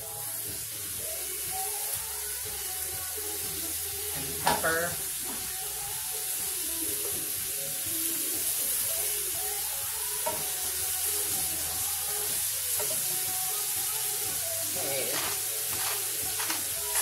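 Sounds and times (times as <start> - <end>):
meat sizzling in a skillet: 0.0 - 17.0
metal spatula scraping: 14.8 - 17.0.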